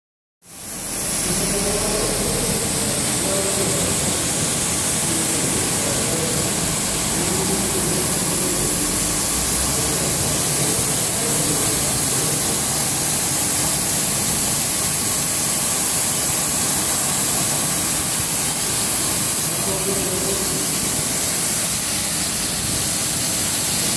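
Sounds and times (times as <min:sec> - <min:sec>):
carpet washing machine running: 0:00.5 - 0:23.9.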